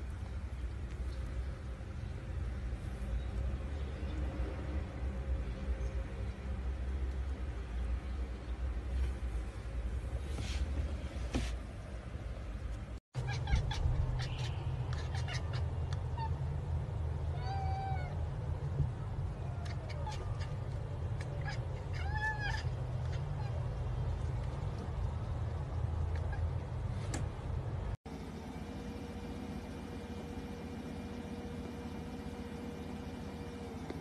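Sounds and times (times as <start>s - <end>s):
cat meowing: 13.2s - 15.6s, 17.3s - 18.2s, 21.2s - 23.6s.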